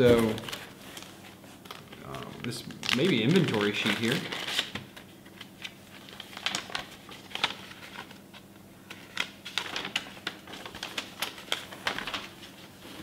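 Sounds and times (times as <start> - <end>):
paper rustling and crackling: 0.0 - 13.0.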